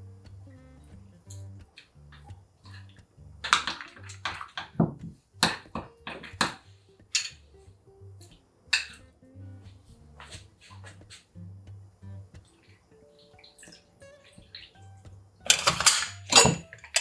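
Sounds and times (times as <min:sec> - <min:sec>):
quiet background music: 0:00.0 - 0:17.0.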